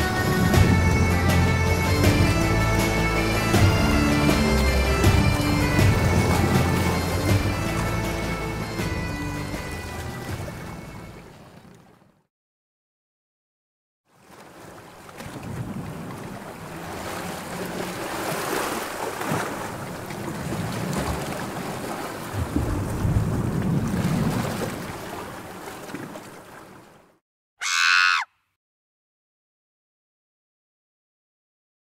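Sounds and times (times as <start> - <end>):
wind rushing: 0.0 - 9.0
sea waves: 0.0 - 12.2, 14.1 - 27.2.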